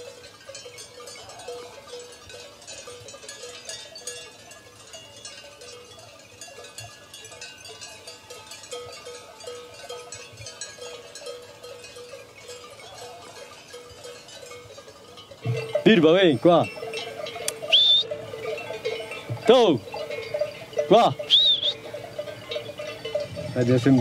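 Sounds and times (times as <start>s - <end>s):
sheep bells clinking: 0.0s - 24.0s.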